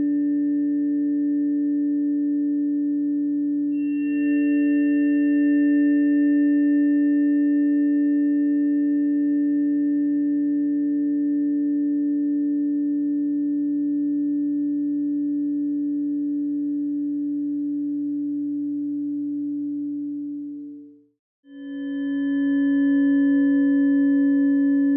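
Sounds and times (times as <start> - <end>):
sustained harmony of pure tones: 3.7 - 11.9, 21.5 - 24.9.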